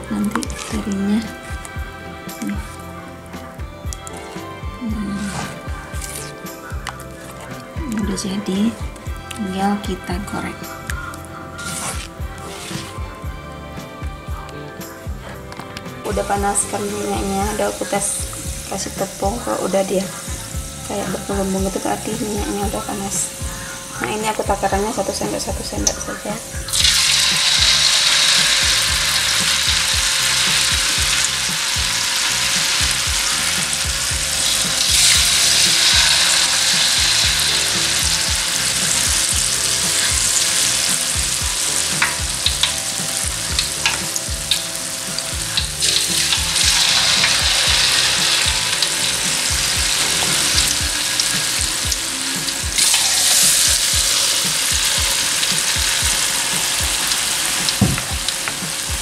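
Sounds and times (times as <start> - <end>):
batter frying in hot oil: 15.0 - 59.0.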